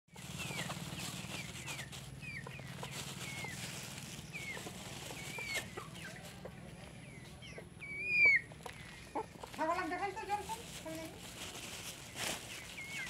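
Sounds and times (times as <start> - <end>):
chickens chirping: 0.1 - 13.0
chickens clucking: 0.1 - 13.0.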